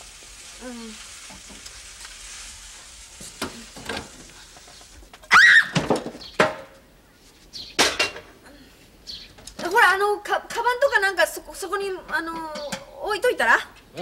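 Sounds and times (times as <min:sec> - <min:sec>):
egg sizzling in a frying pan: 0:00.0 - 0:05.6.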